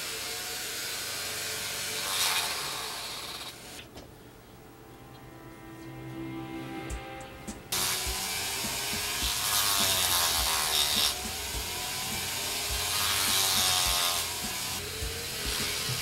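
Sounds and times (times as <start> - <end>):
rotary tool grinding wood: 0.0 - 3.9, 7.7 - 16.0.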